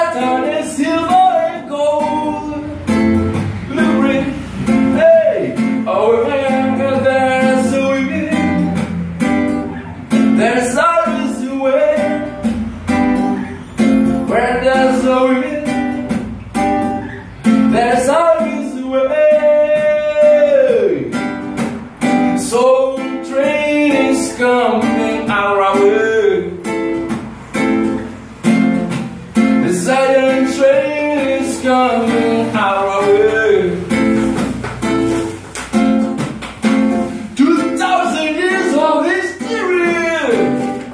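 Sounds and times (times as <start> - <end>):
man singing: 0.0 - 3.0, 3.6 - 8.8, 10.1 - 12.6, 14.2 - 16.3, 17.5 - 21.2, 22.4 - 26.7, 29.4 - 34.3, 37.1 - 40.9
classical guitar strumming: 0.0 - 40.9.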